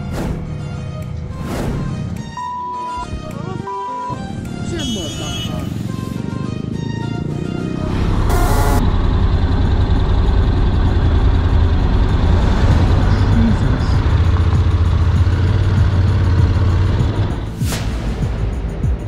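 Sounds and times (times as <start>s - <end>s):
motorcycle engine droning: 5.3s - 17.4s
electronic glitch noise: 8.3s - 8.8s.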